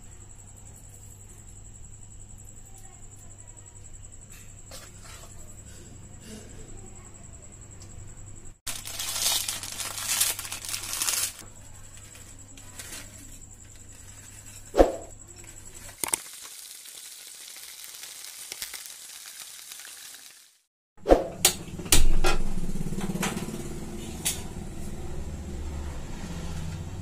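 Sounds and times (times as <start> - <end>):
chip packet crinkling: 8.7 - 11.4, 15.9 - 20.6.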